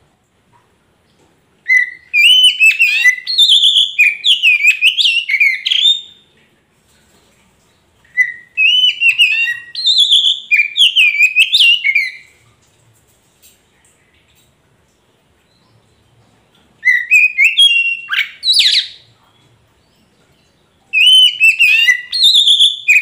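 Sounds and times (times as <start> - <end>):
bird singing whistled notes: 1.7 - 6.2, 8.1 - 12.3, 16.8 - 19.0, 20.9 - 23.0.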